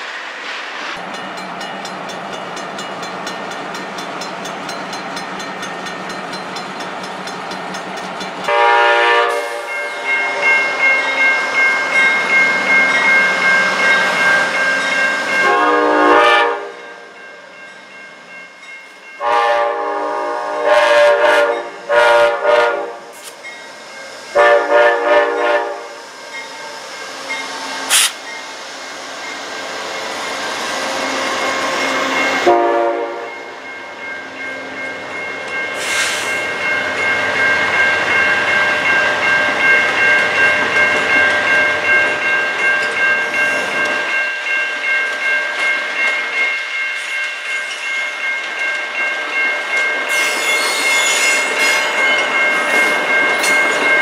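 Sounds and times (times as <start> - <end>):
train cars rumbling past: 0.0 - 54.0
crossing bell ringing: 1.0 - 54.0
train horn blasts: 8.5 - 10.5, 15.4 - 16.8, 19.2 - 23.2, 24.4 - 26.0, 31.1 - 33.5.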